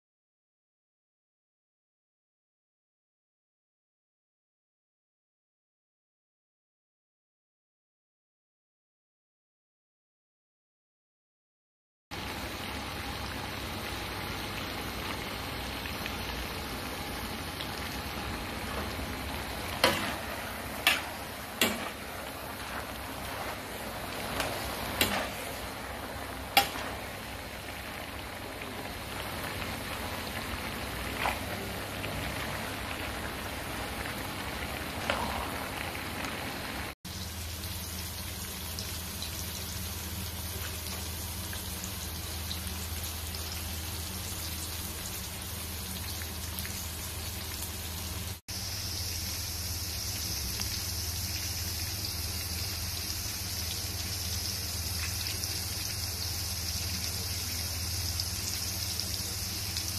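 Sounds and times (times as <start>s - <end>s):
fish cakes sizzling in oil: 12.2s - 59.9s
stir-frying in a wok: 12.2s - 59.9s.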